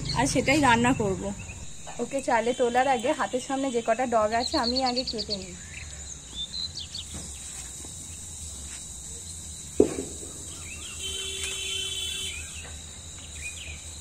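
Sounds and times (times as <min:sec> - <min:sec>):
insects chirring: 0:00.0 - 0:14.0
faint calls: 0:09.8 - 0:12.8.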